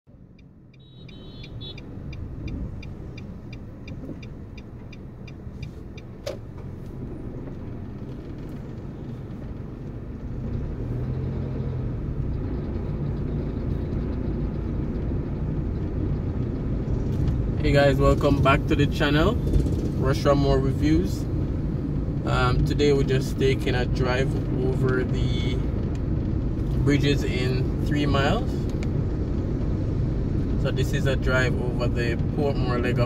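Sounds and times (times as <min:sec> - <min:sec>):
steady ticking: 0:00.1 - 0:10.6
car engine running: 0:00.1 - 0:33.0
tyres on road: 0:00.1 - 0:33.0.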